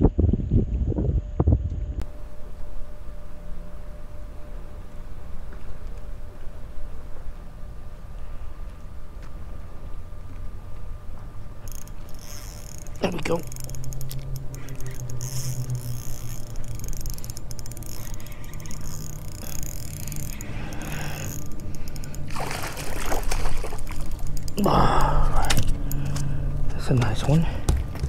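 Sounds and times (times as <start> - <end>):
low steady hum: 0.0 - 28.0
fishing reel clicking: 11.6 - 22.4, 23.4 - 26.3.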